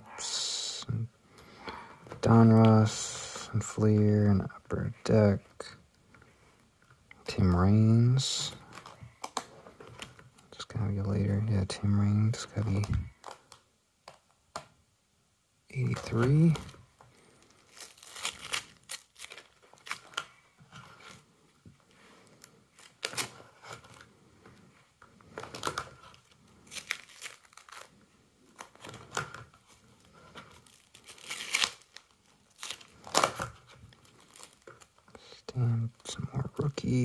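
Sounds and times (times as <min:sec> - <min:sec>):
plastic sleeve pages crinkling: 0:07.2 - 0:11.0, 0:12.2 - 0:14.6, 0:15.8 - 0:37.0.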